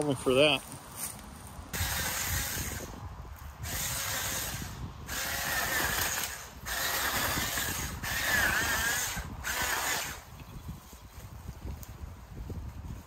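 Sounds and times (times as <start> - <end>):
mini chainsaw whining: 1.8 - 3.0, 3.6 - 10.3.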